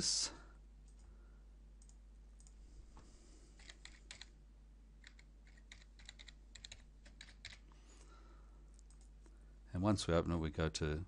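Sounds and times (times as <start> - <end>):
computer keyboard key clicks: 3.6 - 4.3, 5.0 - 7.6.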